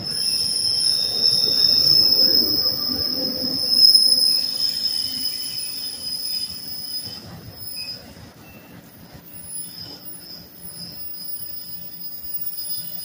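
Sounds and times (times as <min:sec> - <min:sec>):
train cars rumbling: 0:00.0 - 0:13.0
train wheels squealing: 0:00.0 - 0:13.0.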